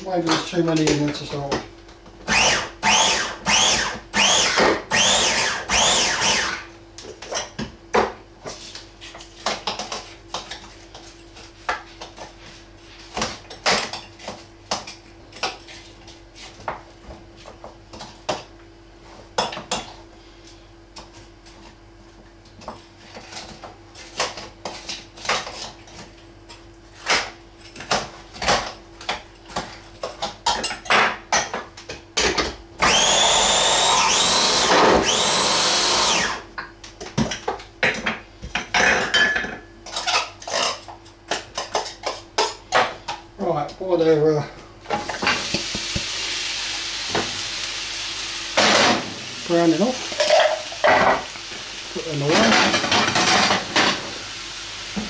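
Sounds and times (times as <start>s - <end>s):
electric food chopper whining: 2.2s - 6.7s, 32.8s - 36.5s
utensils and pot tapping on counter: 50.1s - 51.3s.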